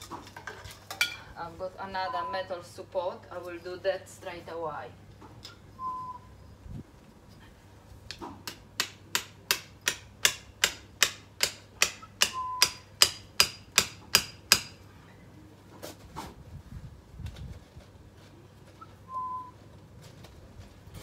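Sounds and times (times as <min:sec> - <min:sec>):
hammer striking metal: 0:08.4 - 0:14.8.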